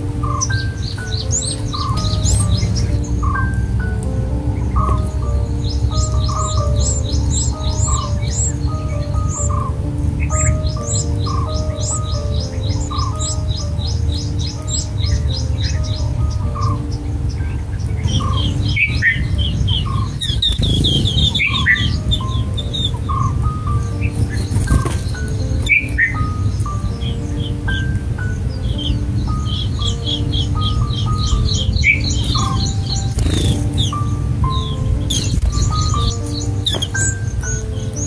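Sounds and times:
birds chirping: 0:00.0 - 0:38.0
soft piano music: 0:00.0 - 0:38.0.

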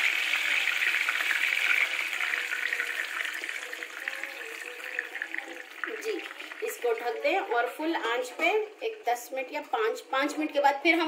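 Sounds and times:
water poured into hot oil: 0:00.0 - 0:07.6
hissing sizzle: 0:00.0 - 0:10.6.

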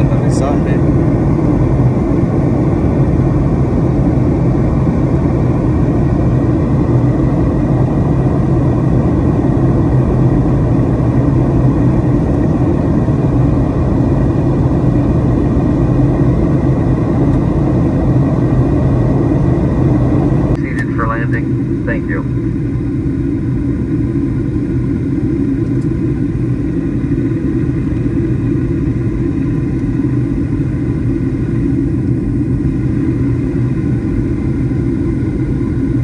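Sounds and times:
faint steady whine: 0:00.0 - 0:36.0
jet engine drone in cabin: 0:00.0 - 0:36.0.

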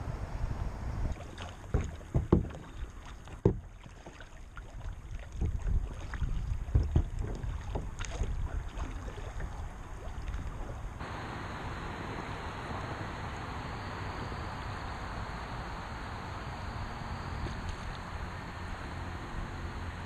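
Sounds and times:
wind rumble on microphone: 0:00.0 - 0:02.9, 0:04.8 - 0:11.6
water splashing against kayak hull: 0:01.1 - 0:11.3, 0:17.3 - 0:18.8.

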